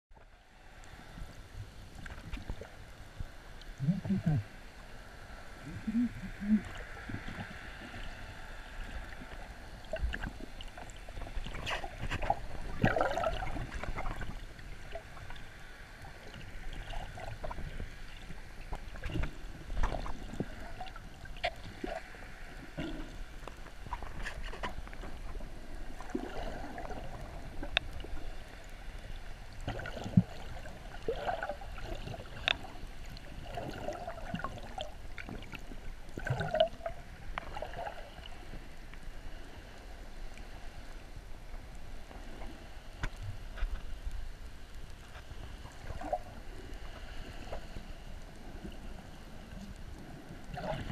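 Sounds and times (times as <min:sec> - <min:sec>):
water gurgling and bubbling: 0:03.6 - 0:04.6, 0:05.4 - 0:15.4, 0:16.0 - 0:24.2, 0:25.9 - 0:28.5, 0:29.5 - 0:38.5, 0:50.4 - 0:50.9
underwater clicks: 0:31.0 - 0:32.8.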